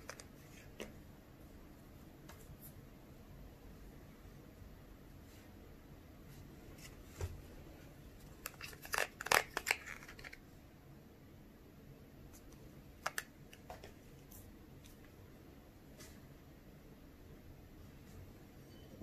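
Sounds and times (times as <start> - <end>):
plastic tray crinkling: 8.4 - 10.4.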